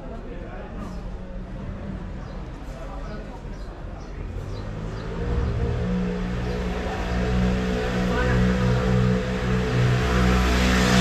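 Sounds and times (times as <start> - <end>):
vehicle engine running: 4.3 - 11.0.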